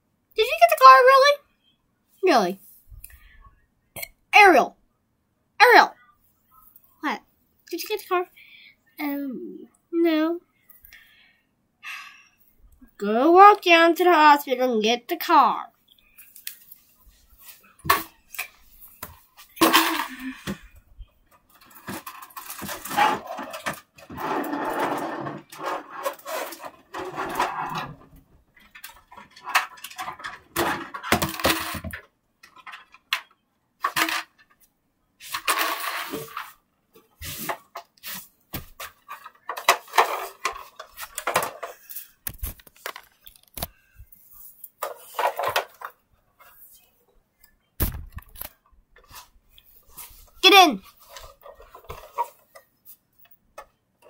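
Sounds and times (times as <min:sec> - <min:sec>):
hard toys clattering: 0:19.5 - 0:20.8, 0:21.4 - 0:34.6, 0:35.2 - 0:36.6, 0:38.6 - 0:43.6, 0:44.8 - 0:46.0.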